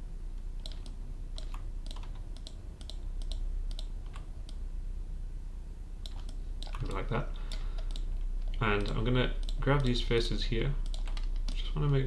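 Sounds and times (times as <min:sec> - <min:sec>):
steady low hum: 0:00.0 - 0:12.0
keyboard and mouse clicking: 0:00.6 - 0:04.6, 0:06.0 - 0:10.0, 0:10.8 - 0:12.0.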